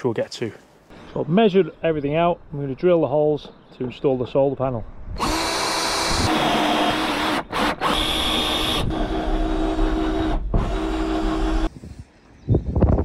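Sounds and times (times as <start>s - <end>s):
cordless drill boring fibreglass: 5.2s - 11.7s.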